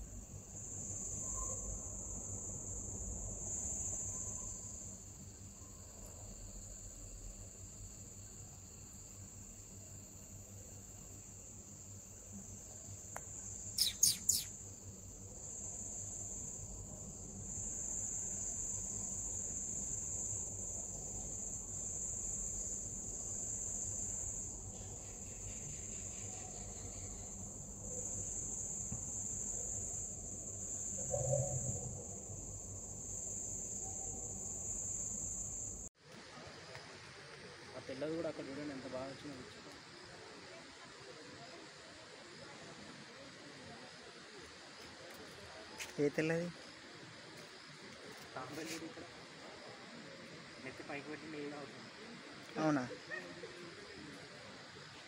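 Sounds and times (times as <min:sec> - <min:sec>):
crickets trilling: 0:00.0 - 0:55.0
sharp high chirps: 0:13.8 - 0:14.6.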